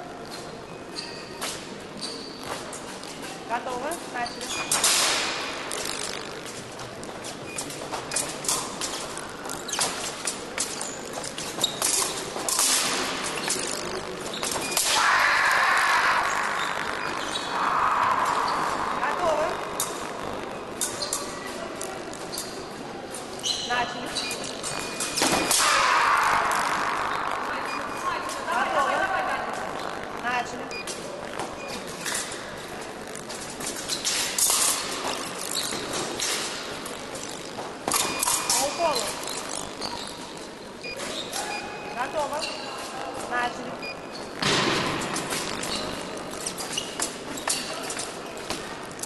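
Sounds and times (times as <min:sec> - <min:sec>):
fencing blades clashing: 0:00.4 - 0:15.3, 0:18.2 - 0:26.8, 0:30.8 - 0:41.5, 0:44.5 - 0:49.0.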